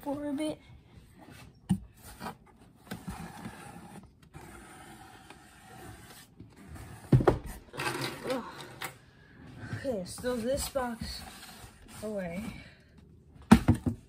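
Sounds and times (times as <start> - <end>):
cardboard scraping and rustling: 1.3 - 8.3, 10.1 - 12.5.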